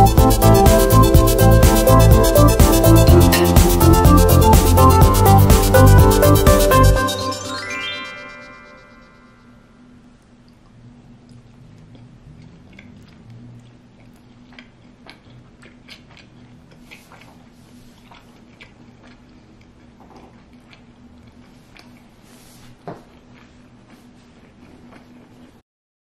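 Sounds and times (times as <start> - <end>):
low hum: 0.0 - 13.9
person chewing: 10.4 - 25.6.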